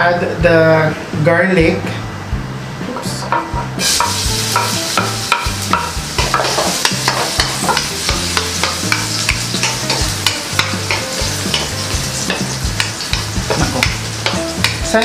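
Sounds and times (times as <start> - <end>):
spatula scraping and knocking a pan: 3.3 - 15.0
garlic sizzling in hot oil: 3.5 - 15.0.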